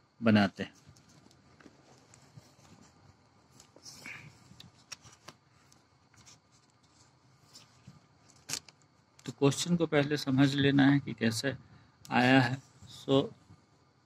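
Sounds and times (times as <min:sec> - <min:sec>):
paper rustling: 0:00.8 - 0:08.8.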